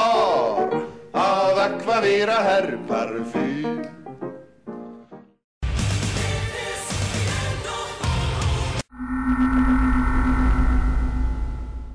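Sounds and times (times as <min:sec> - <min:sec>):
held steady tones: 0:08.9 - 0:11.9.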